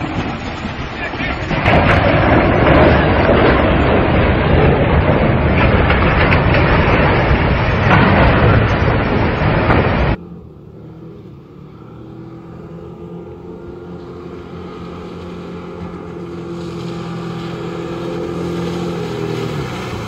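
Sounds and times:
ship hull crashing and scraping: 0.0 - 10.2
distant speedboat engine hum: 0.0 - 20.0.

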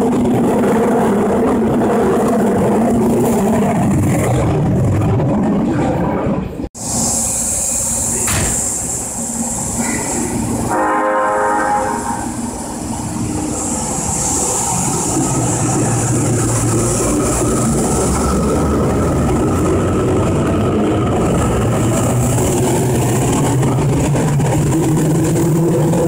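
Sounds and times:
train motor and wheel noise: 0.0 - 26.0
subway train horn blast: 9.8 - 12.6.

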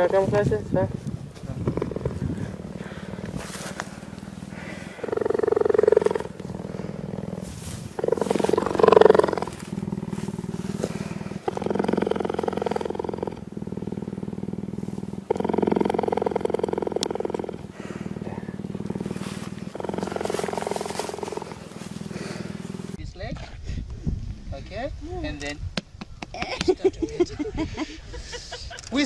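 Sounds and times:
cheetah purring: 0.0 - 23.0.

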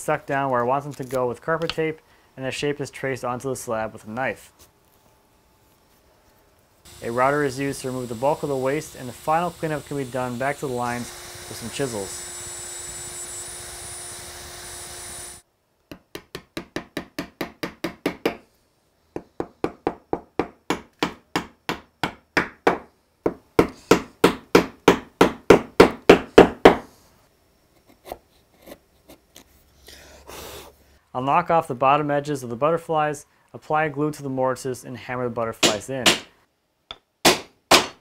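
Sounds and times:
router running: 6.9 - 15.4
chisel chopping wood: 19.9 - 26.8, 35.6 - 36.3, 36.9 - 38.0.

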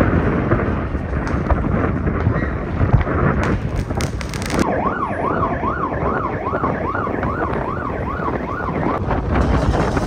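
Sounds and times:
siren yelping: 4.6 - 9.0.

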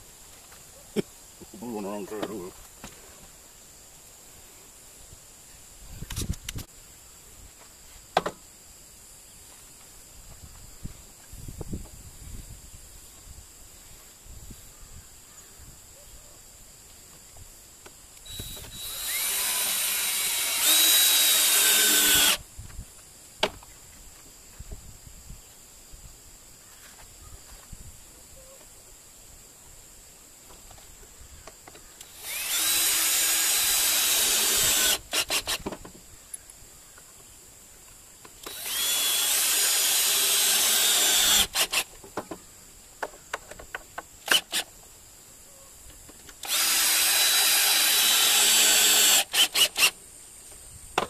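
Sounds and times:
cordless drill into wood: 18.2 - 22.4, 32.0 - 35.8, 38.4 - 41.9, 44.2 - 44.7, 46.4 - 50.0.

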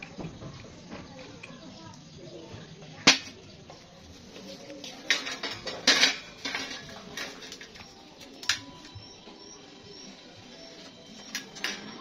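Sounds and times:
steel pieces clinking and clanking: 4.8 - 9.0.

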